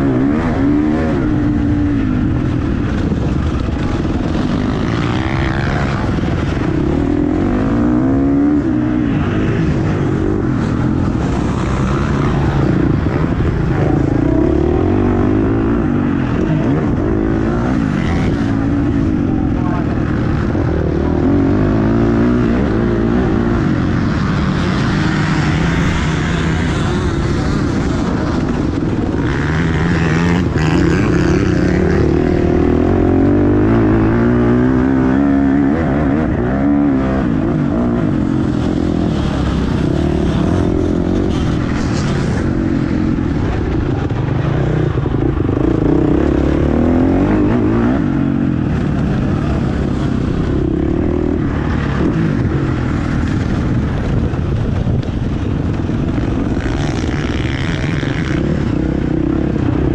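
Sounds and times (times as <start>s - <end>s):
motocross bike engine revving: 0.0s - 54.2s, 55.7s - 59.9s.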